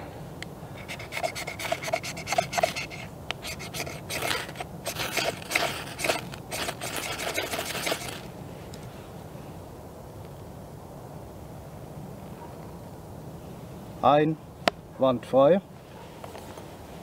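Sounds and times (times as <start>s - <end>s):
knife spine scraping ferro rod: 0.8s - 8.3s.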